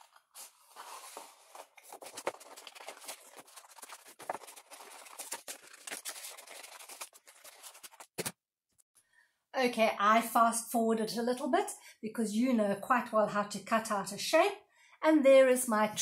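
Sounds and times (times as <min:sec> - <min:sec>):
paper rustling: 0:00.0 - 0:08.4.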